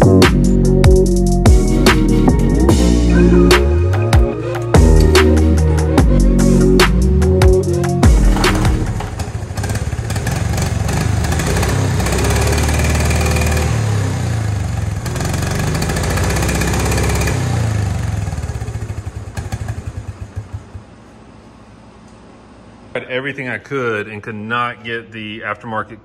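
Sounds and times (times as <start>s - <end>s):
small engine revving and dying: 8.0s - 20.0s.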